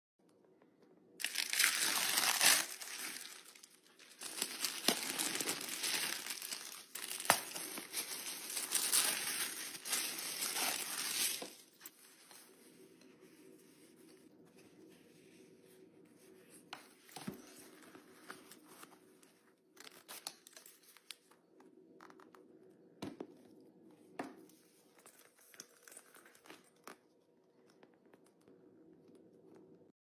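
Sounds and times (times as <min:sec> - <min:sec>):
wallet crinkling and rustling: 0:01.2 - 0:12.1.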